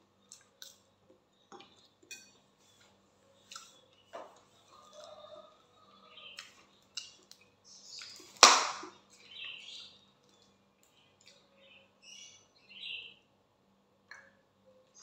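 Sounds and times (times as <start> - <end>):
faint high chirps and crinkles: 0.2 - 8.4
plastic bottle sharp crack: 8.4 - 8.9.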